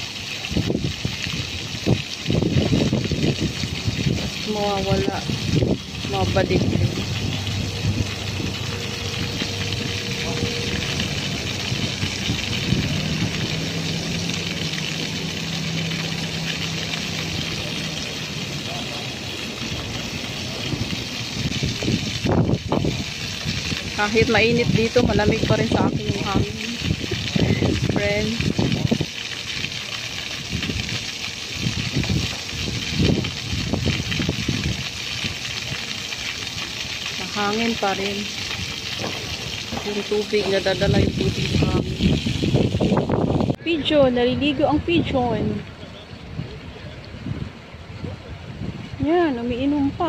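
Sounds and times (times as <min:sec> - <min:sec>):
fountain water spraying on paving: 0:00.0 - 0:50.0
wind buffeting microphone: 0:00.4 - 0:35.5, 0:37.1 - 0:50.0
low hum: 0:03.8 - 0:21.2.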